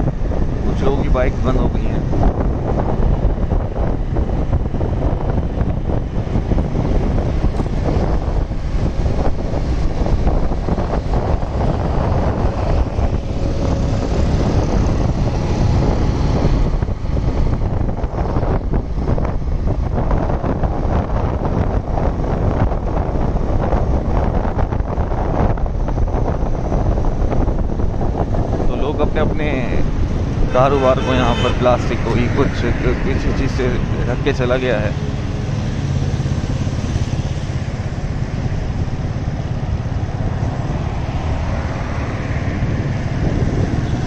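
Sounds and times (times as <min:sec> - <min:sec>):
tyres rumbling on wet road: 0:00.0 - 0:44.0
wind buffeting microphone: 0:00.0 - 0:44.0.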